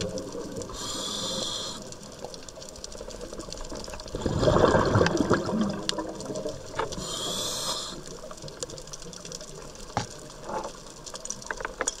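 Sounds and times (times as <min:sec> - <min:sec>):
bubbling: 0:00.0 - 0:12.0
underwater clicks and crackles: 0:00.0 - 0:12.0
regulator hiss: 0:00.6 - 0:02.3, 0:07.0 - 0:08.4.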